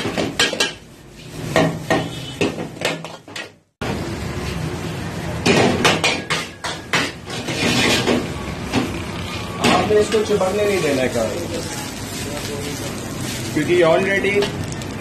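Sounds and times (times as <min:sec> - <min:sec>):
ladle scraping iron wok: 0:06.4 - 0:11.1.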